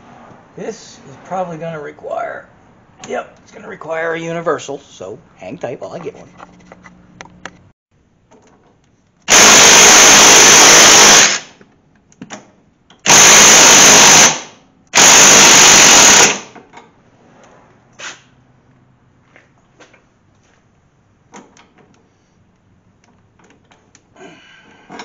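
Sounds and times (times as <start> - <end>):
power tool bursts: 9.3 - 11.6, 13.1 - 16.6.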